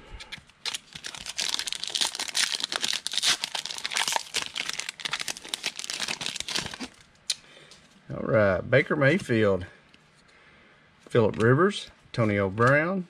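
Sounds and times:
wrapper being torn and crinkled: 0.6 - 7.1.

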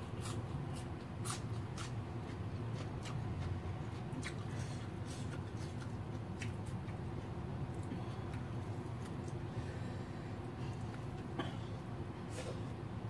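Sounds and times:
low steady hum: 0.0 - 13.0
chewing and mouth smacks: 0.1 - 9.4.

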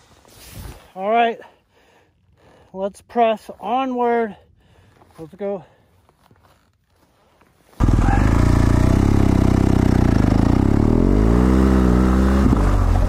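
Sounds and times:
motorcycle engine revving: 7.8 - 13.0.

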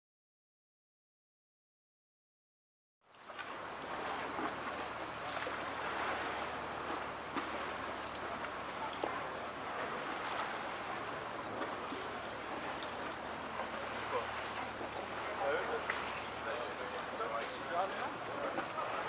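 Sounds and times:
steady wash of noise: 3.4 - 19.0.

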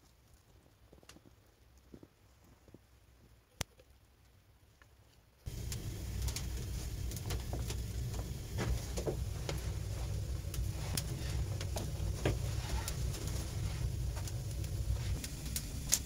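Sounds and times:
wood fire crackling and popping: 0.0 - 16.0
low rumble: 5.5 - 16.0.

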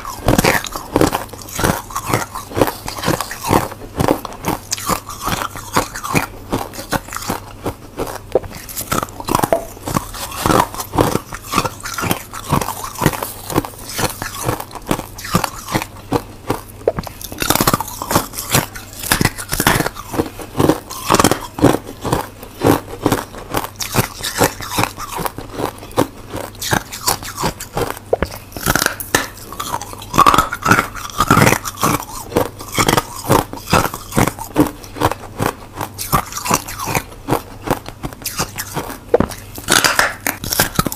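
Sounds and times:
crunching ice: 0.0 - 16.6, 17.2 - 28.0, 28.6 - 40.9.

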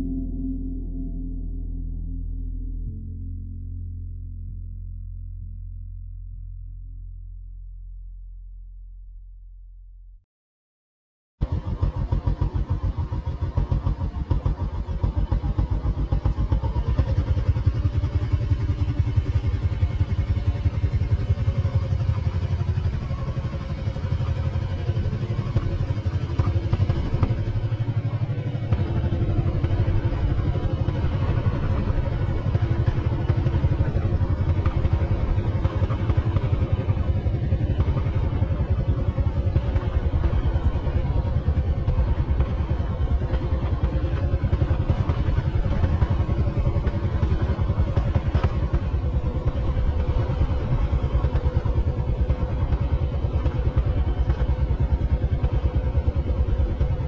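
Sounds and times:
motorcycle engine running: 11.4 - 57.0.

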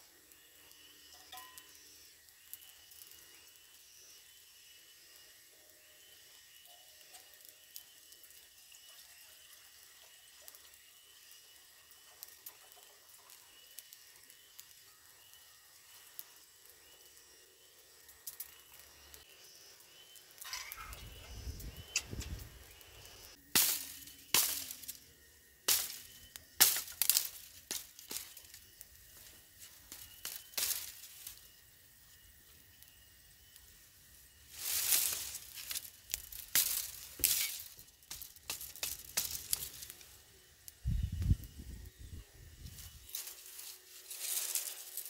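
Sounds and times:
campfire crackling: 0.0 - 45.0
faint high chirp: 0.3 - 11.6, 18.4 - 23.4
dry sticks snapping: 23.6 - 25.0, 25.7 - 28.6, 29.9 - 31.4, 34.6 - 40.0.

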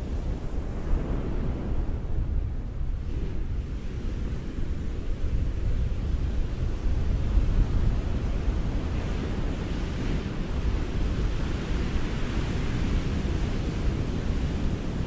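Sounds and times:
low rumble of waves: 0.0 - 15.0.

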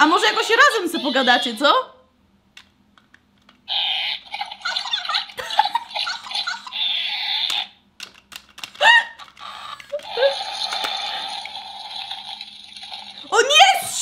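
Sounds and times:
squeaky giggling toy sounds: 3.7 - 7.8, 8.8 - 11.3
toy squeal: 3.7 - 7.8, 8.8 - 11.5.

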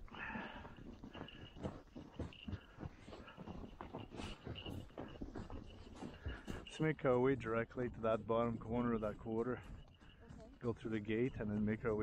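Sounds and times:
hooves crunching through snow: 0.0 - 12.0.

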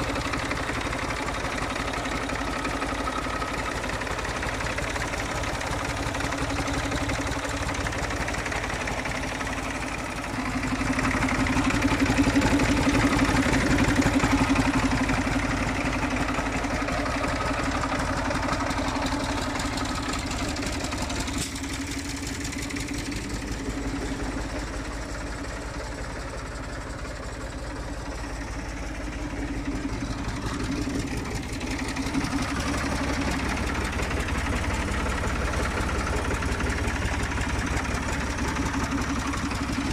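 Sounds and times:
tractor diesel engine idling: 0.0 - 39.9.

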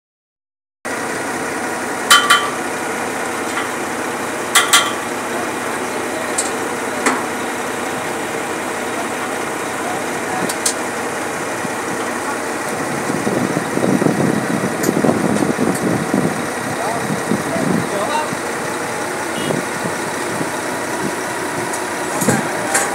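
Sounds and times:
concrete pump engine drone: 0.9 - 22.9
sharp metallic clanks: 2.1 - 2.6, 4.5 - 5.1.

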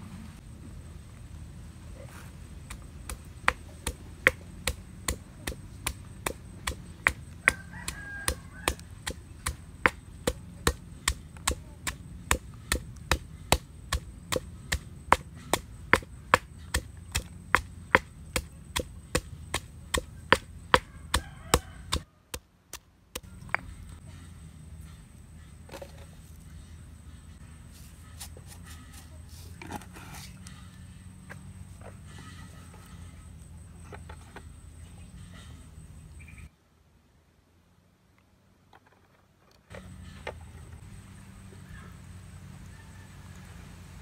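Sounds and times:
stone pestle pounding in mortar: 3.1 - 22.0.

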